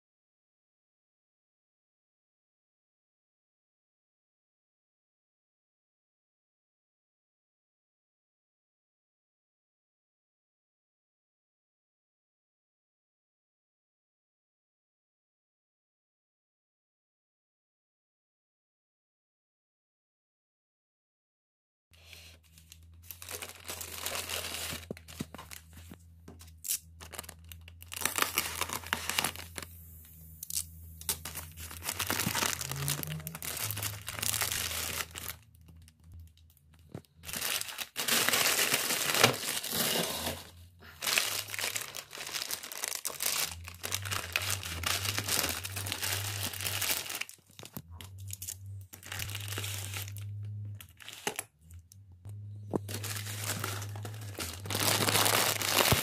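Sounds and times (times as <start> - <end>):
plastic bag crinkling and tearing: 22.4 - 29.8, 30.4 - 35.9, 36.8 - 51.5, 52.7 - 56.0.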